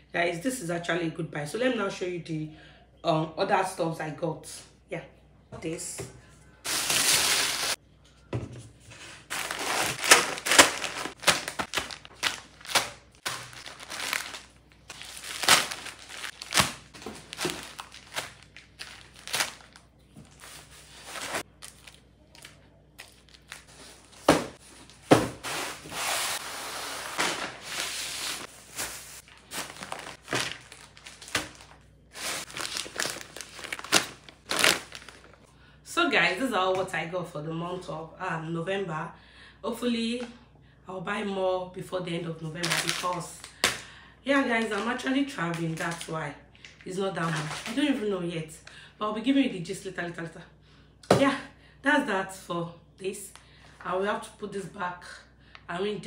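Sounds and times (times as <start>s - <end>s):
plastic packaging crinkling: 6.7s - 7.8s, 9.2s - 25.8s, 26.8s - 35.5s, 42.6s - 43.8s, 44.5s - 48.0s.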